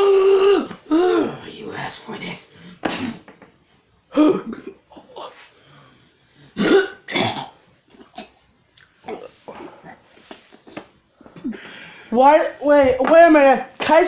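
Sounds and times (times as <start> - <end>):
person making harsh cough-like noises: 2.8 - 3.3, 4.1 - 5.3, 6.6 - 8.4.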